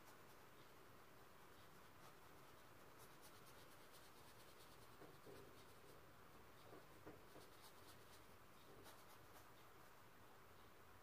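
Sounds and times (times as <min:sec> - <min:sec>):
paint brush rubbing on canvas: 0:01.4 - 0:09.6.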